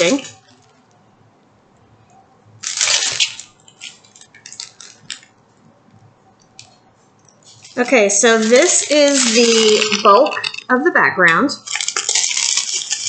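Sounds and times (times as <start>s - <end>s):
crinkles and clicks: 1.7s - 10.8s, 11.6s - 13.0s
plastic bags crinkling: 2.6s - 5.4s, 7.4s - 10.7s, 11.6s - 13.0s.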